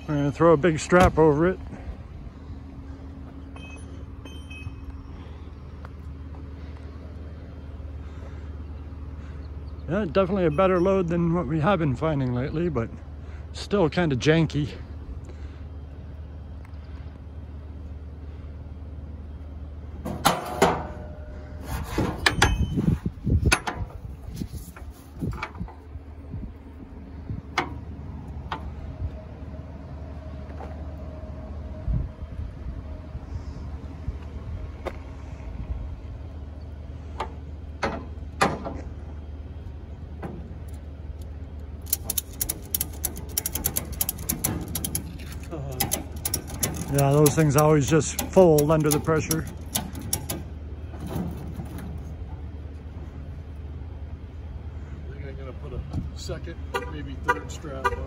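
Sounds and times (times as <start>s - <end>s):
steady low hum: 0.0s - 57.3s
steel hook clanking on metal: 22.0s - 22.9s, 41.9s - 50.5s
ratchet clicks: 41.8s - 50.5s
strap hardware knocks and rattles: 41.8s - 52.1s.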